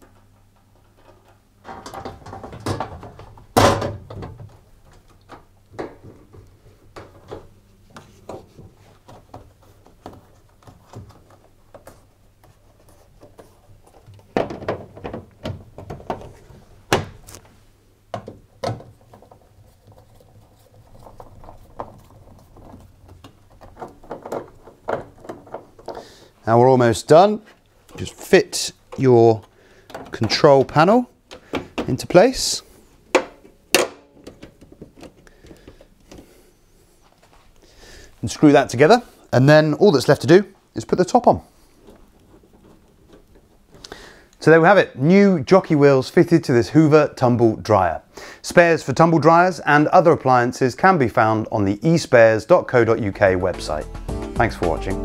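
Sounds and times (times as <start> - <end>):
plastic panel knocks and rattles: 0.8 - 7.5, 13.9 - 17.2, 18.1 - 26.0.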